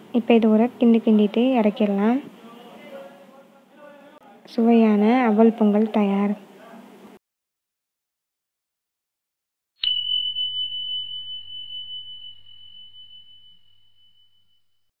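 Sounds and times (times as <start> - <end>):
bell-like ding: 9.8 - 14.9.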